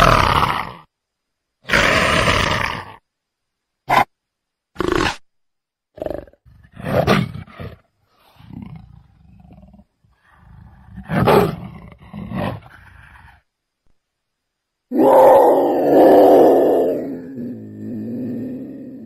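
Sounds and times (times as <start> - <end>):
leopard rasping roar calls: 14.9 - 19.0.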